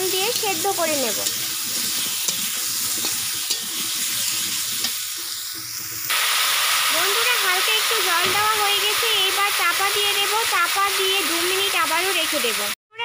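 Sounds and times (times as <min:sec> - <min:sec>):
potatoes sizzling in oil: 0:00.0 - 0:12.8
water hissing in hot pan: 0:00.0 - 0:12.8
metal spatula scraping pan: 0:00.3 - 0:06.0.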